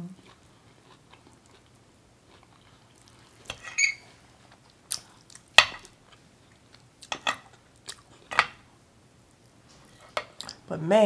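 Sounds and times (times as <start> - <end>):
fork scraping and clinking on plate: 3.5 - 4.0.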